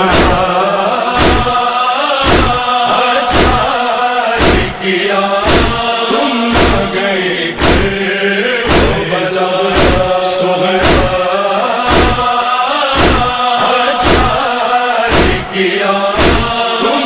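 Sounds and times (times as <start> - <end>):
men chanting a lament: 0.0 - 17.0
chest-beating: 7.6 - 8.0.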